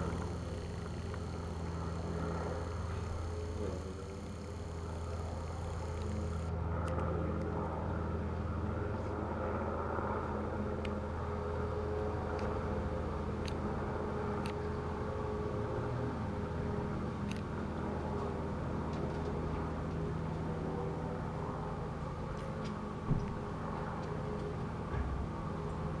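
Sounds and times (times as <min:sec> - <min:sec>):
faint high ticks: 0:00.0 - 0:07.1, 0:10.6 - 0:18.3
distant helicopter drone: 0:00.0 - 0:26.0.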